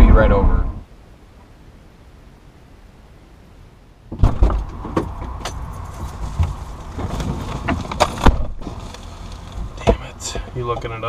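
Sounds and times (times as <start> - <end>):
outside noise: 0.0 - 11.0
thumps and knocks of settling in: 4.1 - 10.9
vehicle door opening: 4.2 - 10.1.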